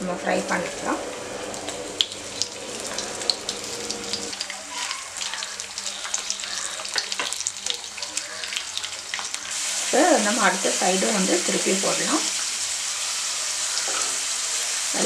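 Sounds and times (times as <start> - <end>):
potatoes sizzling in hot oil: 0.2 - 15.0.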